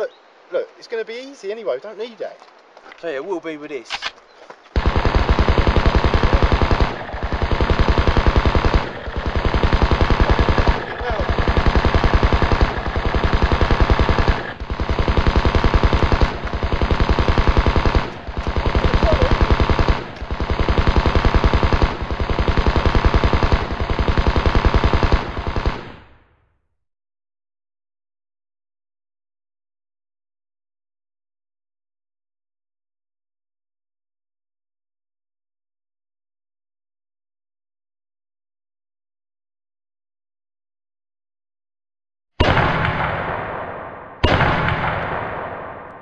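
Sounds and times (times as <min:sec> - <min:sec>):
automatic rifle fire: 0:04.8 - 0:26.2, 0:42.4 - 0:46.0.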